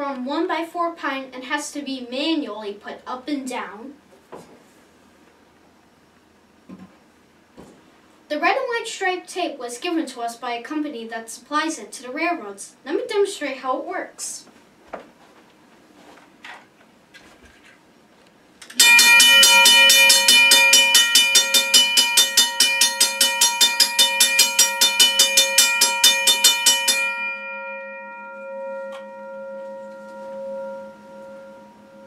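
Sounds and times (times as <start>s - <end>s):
railroad crossing bell striking: 18.8s - 32.0s.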